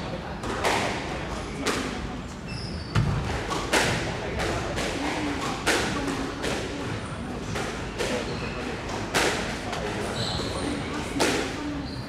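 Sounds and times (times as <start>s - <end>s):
squash ball hits: 2.9s - 6.7s.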